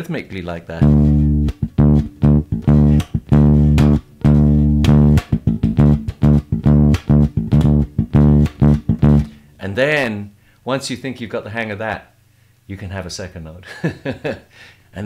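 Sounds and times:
electric bass guitar with dead notes: 0.7s - 9.4s.

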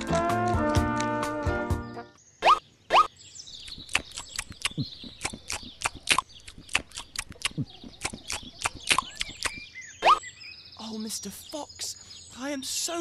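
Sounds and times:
faint birdsong: 0.6s - 13.0s
sharp irregular clicks: 3.6s - 9.6s.

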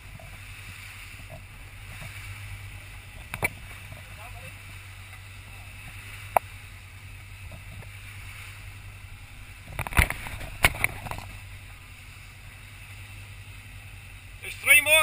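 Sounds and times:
boat engine humming: 0.0s - 15.0s
wind and water hissing: 0.0s - 15.0s
camera knocking and rattling: 9.7s - 11.3s.

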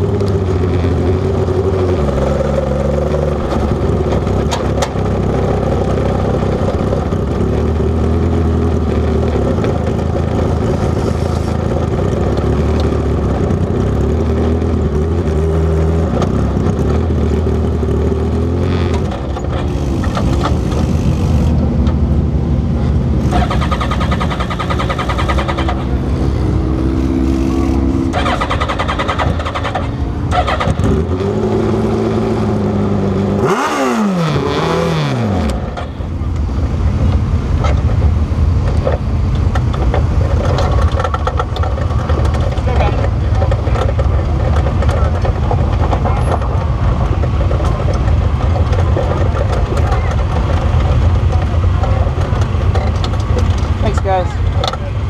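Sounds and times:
race car engine idling: 35.5s - 55.0s.

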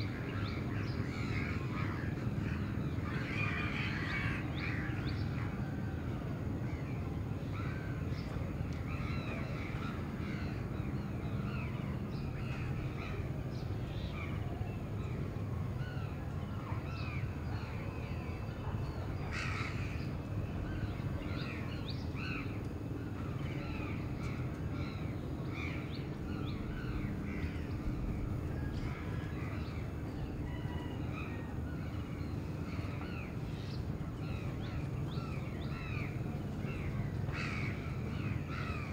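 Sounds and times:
low city rumble: 0.0s - 38.9s
crows cawing: 37.3s - 38.9s.

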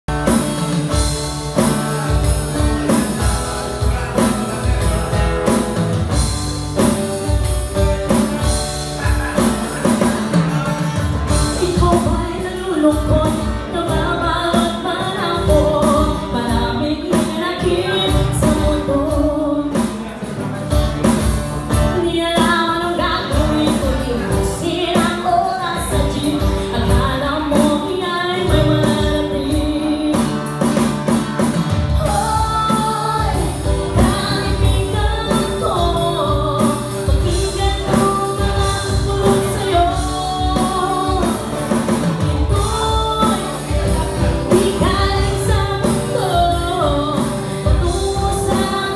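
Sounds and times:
strummed acoustic guitar: 0.1s - 48.9s
woman singing into a microphone: 0.1s - 48.9s.

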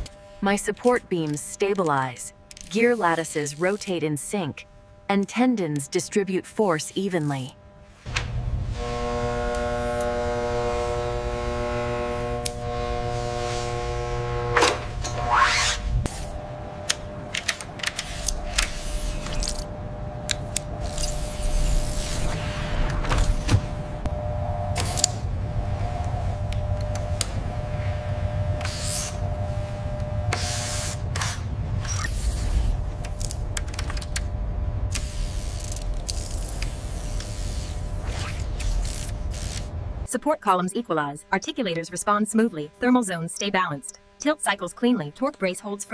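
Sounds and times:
mechanical clicks and ticks: 0.0s - 4.0s, 31.1s - 37.4s
low steady hum: 0.0s - 45.9s
steady low rumble: 7.6s - 40.2s.

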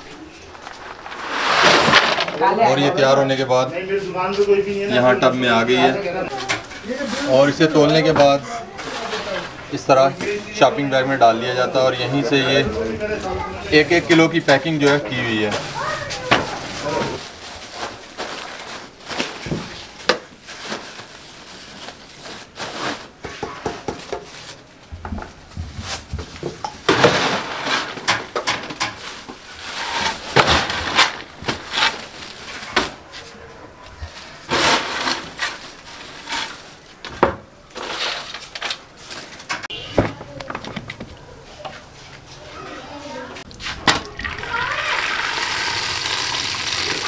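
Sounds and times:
plastic bag crinkling and rustling: 0.0s - 3.4s, 6.3s - 10.6s, 13.1s - 23.2s, 26.8s - 37.0s.

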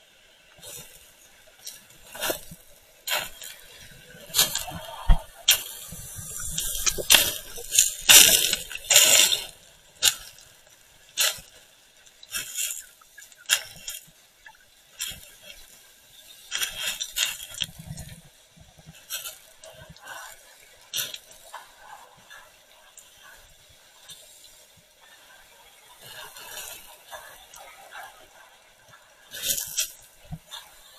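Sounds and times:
underwater pebbles rattling: 1.6s - 20.0s.

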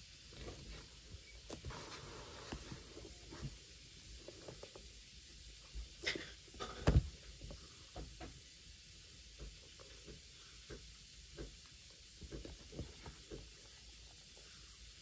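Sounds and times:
paperback books rustling: 0.4s - 4.8s.

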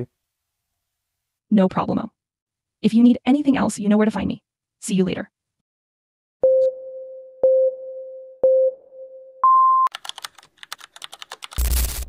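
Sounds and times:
countdown beeps: 6.4s - 9.9s
typing clicks: 9.9s - 11.9s.

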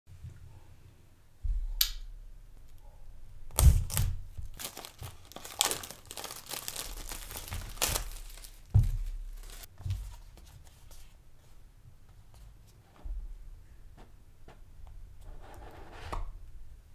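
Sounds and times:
plastic wrap crinkling: 3.5s - 9.7s.

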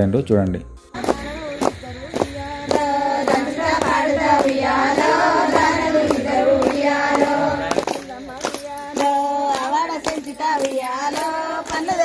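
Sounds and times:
rhythmic hand clapping: 1.0s - 12.0s
woman singing: 1.0s - 12.0s.

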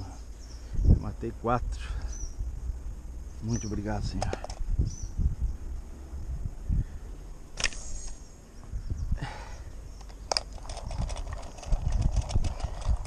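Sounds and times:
sharp clicks: 7.6s - 8.2s, 10.0s - 13.0s
handling rustle: 10.0s - 13.0s.

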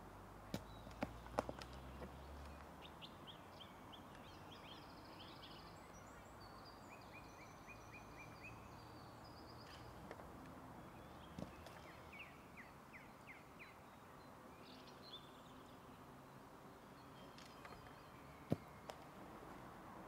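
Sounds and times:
small birds chirping and trilling: 0.6s - 19.0s.

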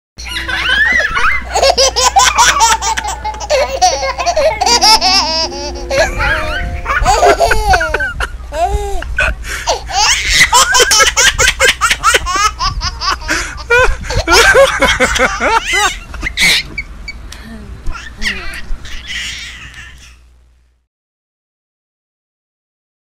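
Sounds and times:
high-pitched laughter: 0.2s - 16.8s.

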